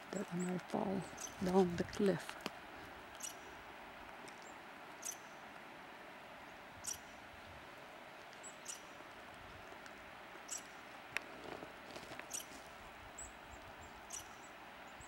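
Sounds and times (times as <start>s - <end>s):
background hiss: 0.0s - 15.0s
small animal squeaks: 12.3s - 12.5s.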